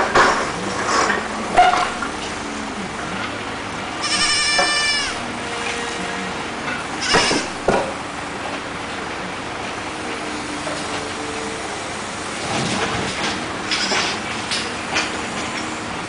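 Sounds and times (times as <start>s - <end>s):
kid goat bleating: 4.0s - 5.2s, 7.0s - 7.6s.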